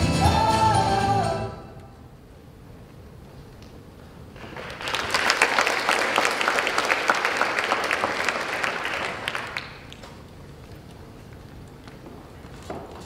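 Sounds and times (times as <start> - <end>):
audience applauding: 4.4 - 10.3.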